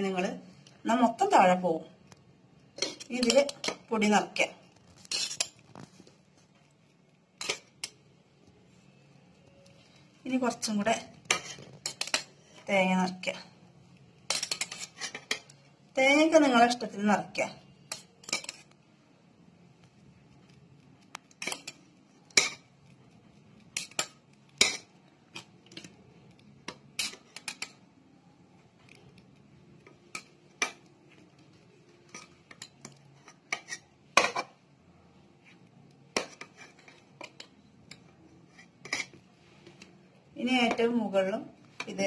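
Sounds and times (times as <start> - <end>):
metal spoon scraping steel bowl: 2.8 - 3.9, 5.0 - 5.6, 11.2 - 12.3, 14.3 - 15.6, 32.0 - 34.6, 36.2 - 39.2.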